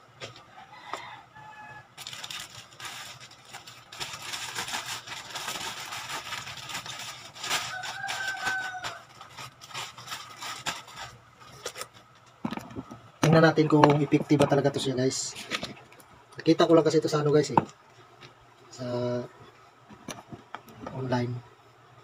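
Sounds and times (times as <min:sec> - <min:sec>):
rooster crowing: 0:00.4 - 0:02.0, 0:07.4 - 0:09.5
plastic packaging crinkling: 0:02.0 - 0:12.9.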